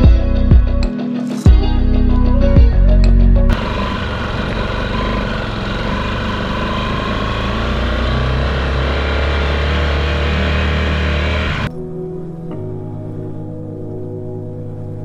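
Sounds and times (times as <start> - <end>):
music: 0.0 - 3.6, 11.6 - 15.0
road noise: 3.5 - 11.7
vehicle engine hum: 3.5 - 11.7.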